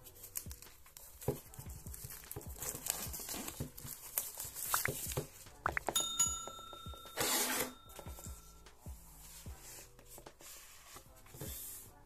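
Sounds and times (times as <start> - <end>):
bell-like ding: 6.0 - 8.6.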